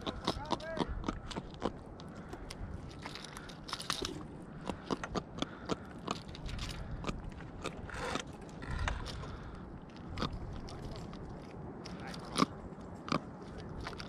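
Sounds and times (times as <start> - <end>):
fishing tackle clicking and rattling: 2.0 - 5.2, 5.8 - 12.6.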